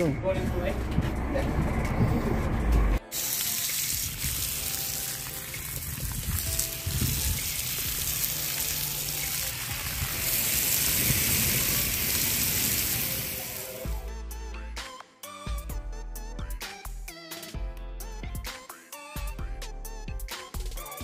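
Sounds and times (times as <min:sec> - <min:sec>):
hose water spattering: 0:03.0 - 0:14.0.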